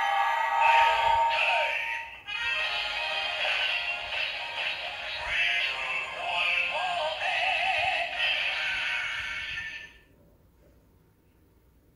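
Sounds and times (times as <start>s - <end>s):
toy belt electronic voice and music: 0.3s - 10.0s.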